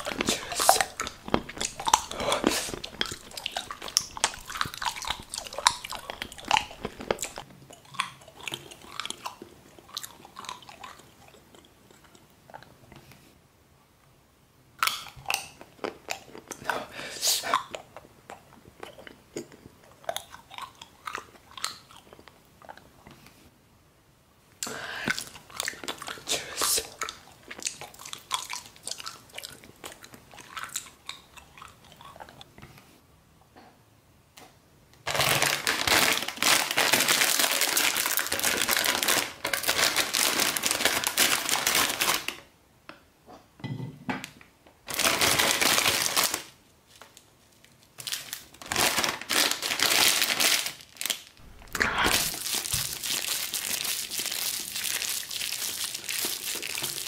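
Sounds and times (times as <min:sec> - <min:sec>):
plastic packet crinkling: 0:00.0 - 0:07.4, 0:35.1 - 0:42.4, 0:44.9 - 0:57.0.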